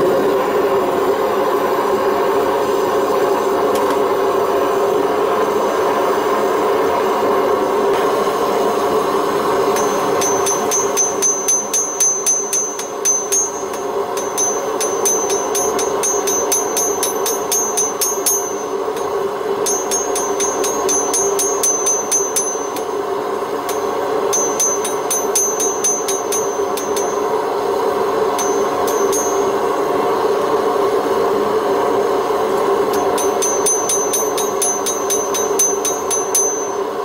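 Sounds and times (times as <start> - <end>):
gas forge burner roaring: 0.0 - 37.0
hammer ringing on steel: 9.6 - 30.2, 32.9 - 37.0.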